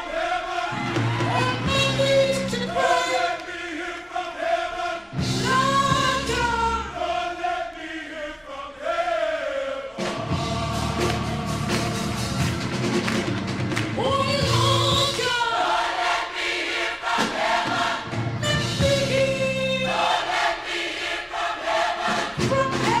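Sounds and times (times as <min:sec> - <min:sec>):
gospel choir singing: 0:00.0 - 0:23.0
band accompaniment: 0:00.8 - 0:02.9, 0:05.1 - 0:06.7, 0:10.0 - 0:15.3, 0:17.1 - 0:20.1, 0:22.0 - 0:23.0.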